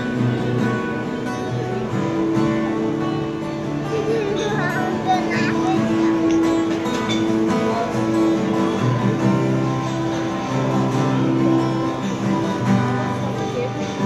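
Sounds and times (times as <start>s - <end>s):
acoustic guitar playing: 0.0s - 14.0s.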